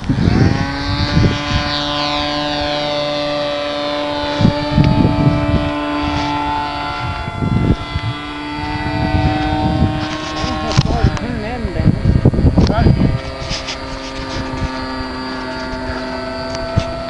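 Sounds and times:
model plane engine buzzing: 0.0s - 17.0s.

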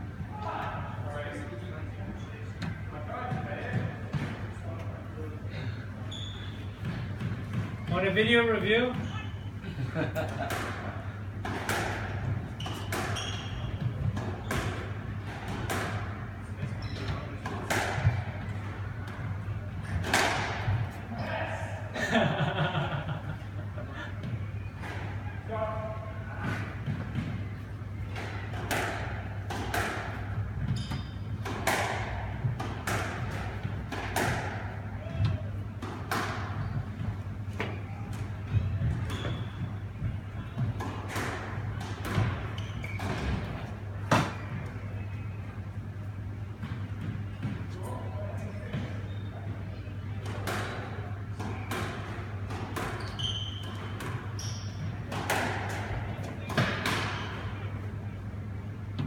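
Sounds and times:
brief high squeak: 6.1s - 6.7s, 12.6s - 13.8s, 54.4s - 54.8s
shoes squeaking on wooden floor: 6.1s - 8.1s, 12.5s - 14.9s, 16.6s - 17.4s, 30.6s - 31.4s, 38.6s - 39.8s, 42.2s - 43.5s, 52.9s - 55.0s.

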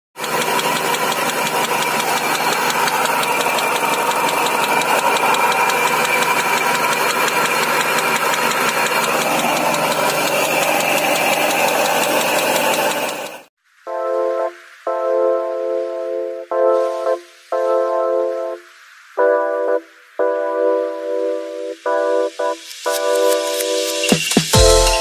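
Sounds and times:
car engine idling with knocking rattle: 0.2s - 13.5s.

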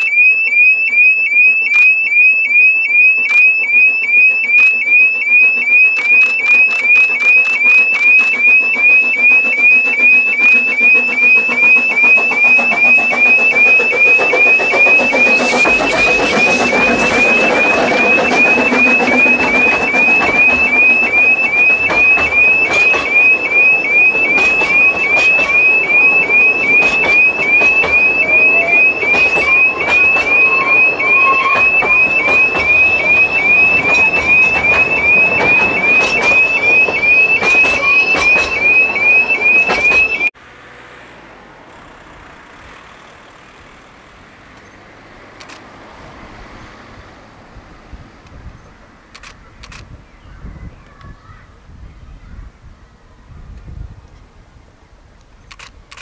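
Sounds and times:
level crossing alarm chirping: 0.0s - 40.4s
wheel clicks over rail joints: 0.8s - 40.3s
train rumble: 3.0s - 56.0s.

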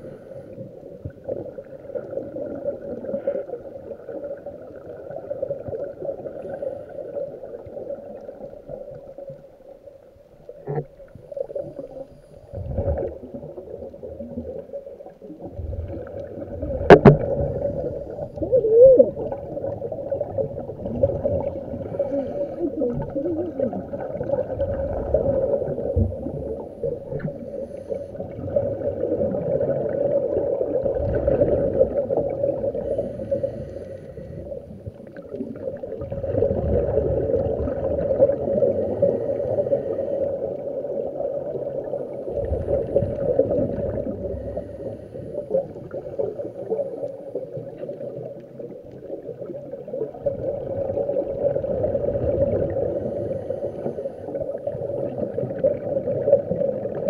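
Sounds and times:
bubbles gurgling: 0.0s - 9.6s, 10.3s - 57.0s
scuba regulator breathing underwater: 15.9s - 29.0s, 31.1s - 35.0s, 36.0s - 41.2s, 41.9s - 47.3s, 51.0s - 56.0s.

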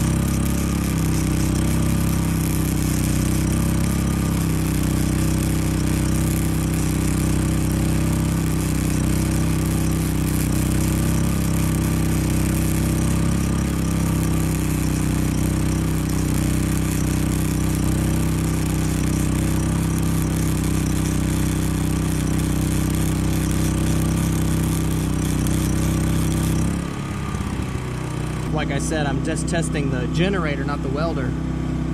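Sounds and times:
welding arc crackling: 0.0s - 31.2s
generator engine running: 0.0s - 31.9s.

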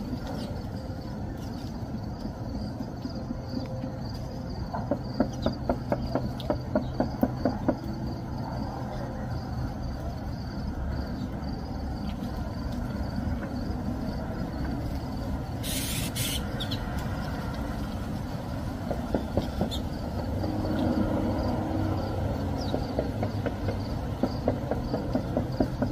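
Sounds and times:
brief hissing rush: 15.6s - 16.5s.

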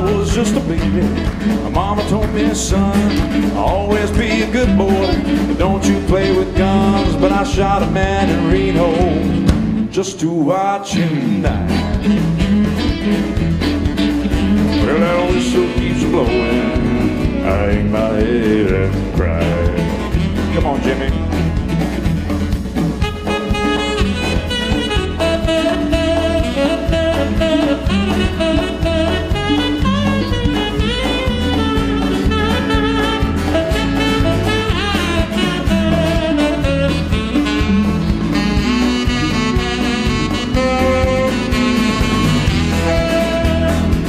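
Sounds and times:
saxophone solo: 0.0s - 1.7s, 11.9s - 18.3s, 19.6s - 22.2s, 23.0s - 44.0s
drum beat: 0.0s - 10.0s, 11.5s - 44.0s
bass: 0.0s - 44.0s
guitar: 0.0s - 44.0s.

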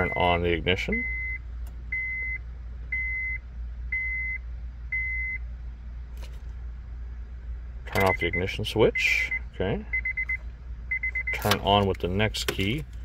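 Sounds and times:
electronic beep: 0.0s - 0.4s.

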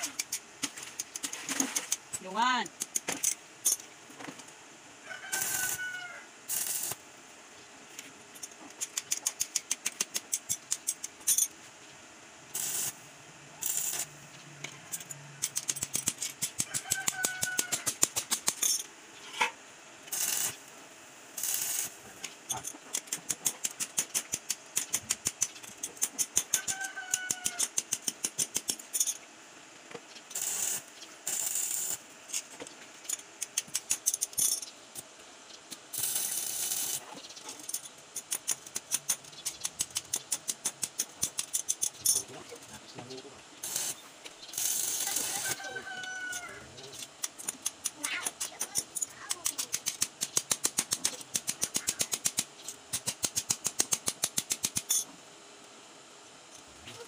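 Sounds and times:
welding arc crackling: 5.3s - 5.8s, 6.5s - 7.0s, 12.5s - 14.2s, 20.1s - 29.1s, 30.3s - 32.5s, 35.9s - 37.0s, 43.6s - 45.7s, 46.4s - 55.0s
rapid sharp crackles and clicks: 15.4s - 18.7s, 21.4s - 29.0s, 35.0s - 42.9s, 46.9s - 55.0s.

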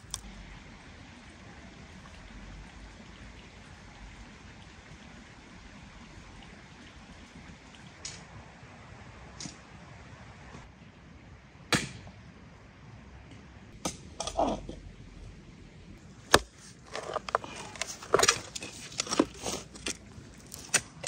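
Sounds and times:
axe chopping branches: 16.3s - 19.9s.

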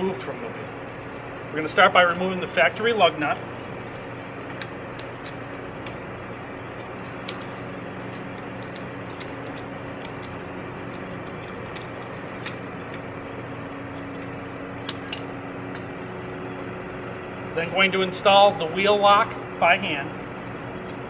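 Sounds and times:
steady background hum: 0.0s - 21.0s
socket wrench clicking: 6.8s - 13.0s, 14.0s - 15.9s.

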